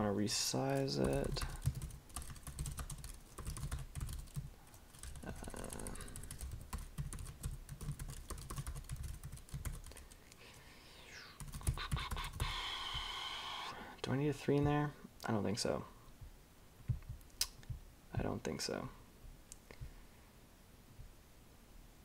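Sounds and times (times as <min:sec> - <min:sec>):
typing on computer keyboard: 0:00.8 - 0:10.1.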